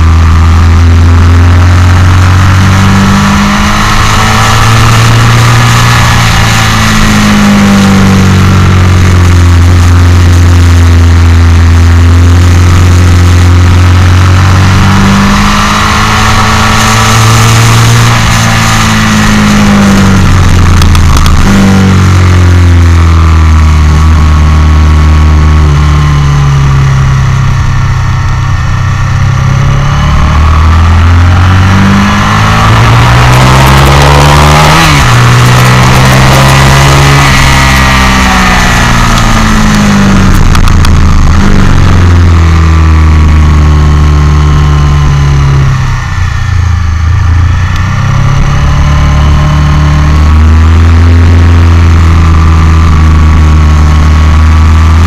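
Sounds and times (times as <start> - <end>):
motorcycle engine revving: 0.0 - 55.0
wind rushing: 29.6 - 42.9.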